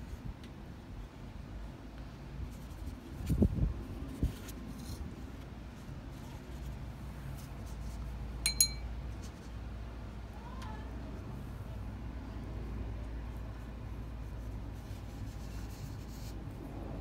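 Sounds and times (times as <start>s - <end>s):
paintbrush clinking on glass: 8.4s - 9.0s.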